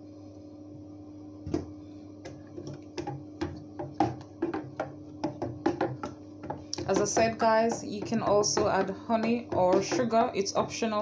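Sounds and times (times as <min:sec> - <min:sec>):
steady low hum: 0:00.0 - 0:11.0
spoon stirring and tapping jug: 0:02.3 - 0:10.4.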